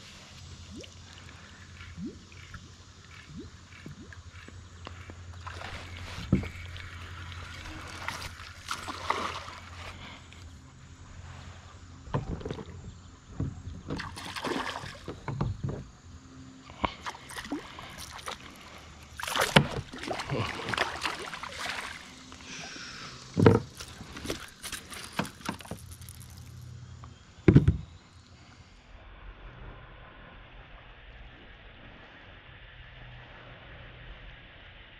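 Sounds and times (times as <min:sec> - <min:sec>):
water sloshing: 0:00.6 - 0:10.7, 0:13.8 - 0:15.8, 0:16.8 - 0:26.7
fish splashing at the surface: 0:05.4 - 0:10.2, 0:14.0 - 0:15.1, 0:17.0 - 0:22.3.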